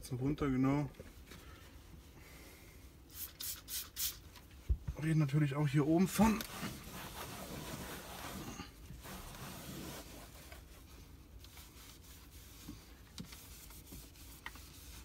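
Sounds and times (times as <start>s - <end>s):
cloth rubbing on plastic: 6.0s - 15.0s.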